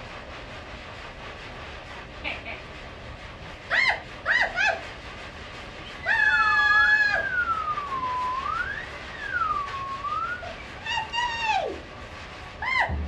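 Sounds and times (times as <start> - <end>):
wavering whistled tone: 7.0 - 11.2.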